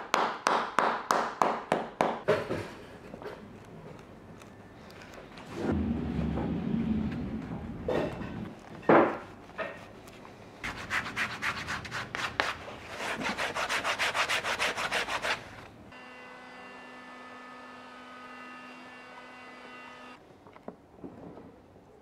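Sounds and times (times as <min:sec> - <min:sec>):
hand sanding strokes: 0:10.6 - 0:15.6.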